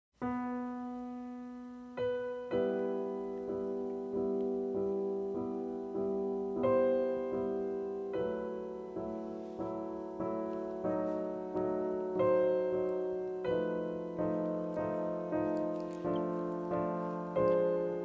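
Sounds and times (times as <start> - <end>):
solo piano music: 0.2 - 18.0.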